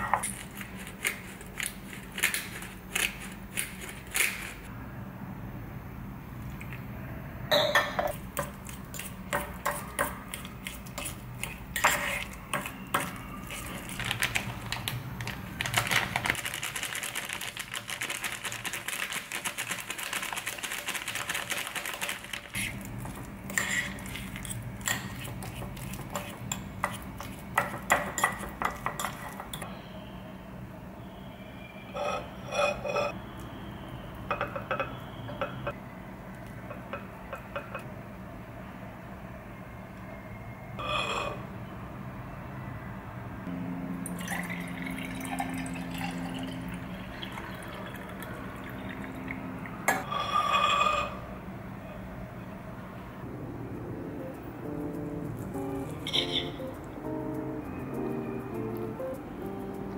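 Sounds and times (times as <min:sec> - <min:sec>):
fork scraping ceramic bowl: 0:08.7 - 0:13.8, 0:23.5 - 0:27.4, 0:31.9 - 0:33.2.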